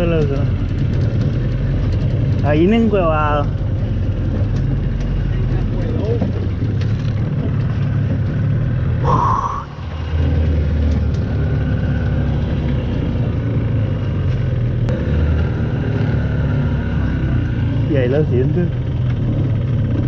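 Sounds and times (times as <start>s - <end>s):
outboard motor rumbling: 0.0s - 13.9s.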